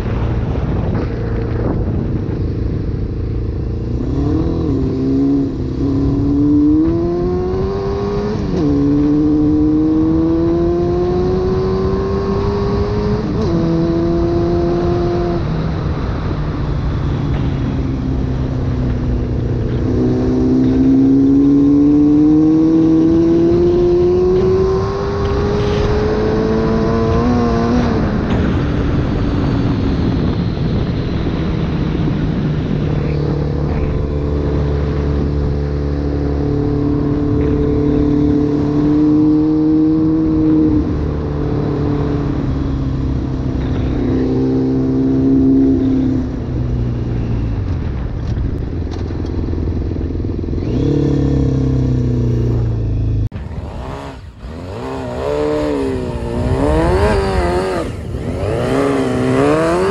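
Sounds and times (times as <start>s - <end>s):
motorcycle engine revving: 0.0s - 59.9s
wind noise: 0.0s - 59.9s.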